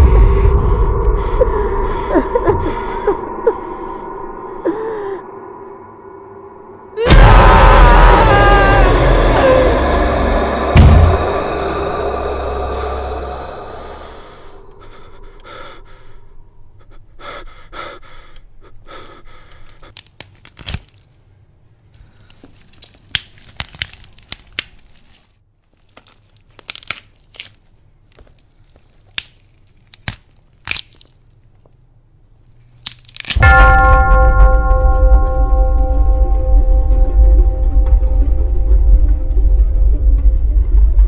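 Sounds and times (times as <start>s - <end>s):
crackles and clicks: 19.5s - 21.2s, 21.9s - 36.5s
music: 33.4s - 41.0s.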